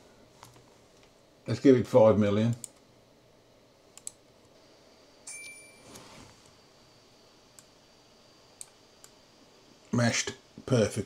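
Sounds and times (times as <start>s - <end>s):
faint high whine: 0.0s - 11.0s
computer mouse clicks: 4.0s - 4.2s, 8.6s - 9.2s.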